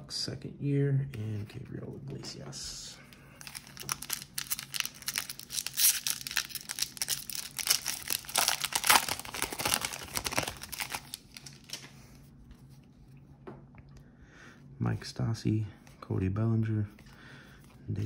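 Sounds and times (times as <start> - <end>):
wrapper tearing and crinkling: 3.4 - 11.9.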